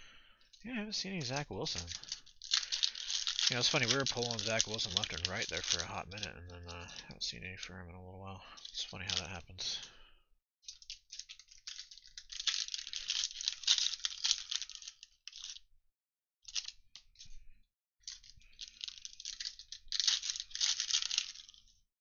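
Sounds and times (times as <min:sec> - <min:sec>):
card pack wrapper crinkling and tearing: 0:01.1 - 0:07.2, 0:10.7 - 0:15.6, 0:18.1 - 0:21.7
small clicks: 0:01.7 - 0:07.1.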